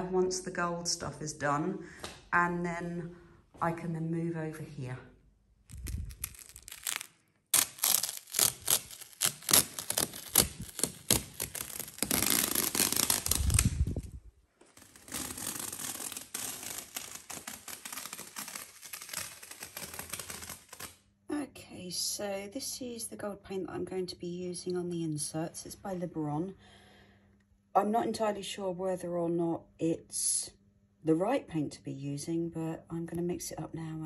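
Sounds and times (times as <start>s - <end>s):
masking tape peeling: 5.7s - 21.0s.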